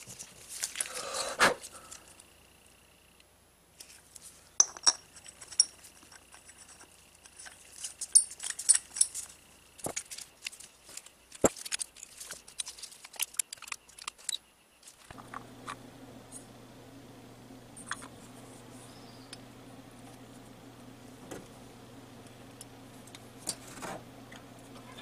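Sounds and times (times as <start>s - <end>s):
metallic clicks and clinks: 4.6s - 15.0s
patter of small ticks: 5.1s - 15.8s.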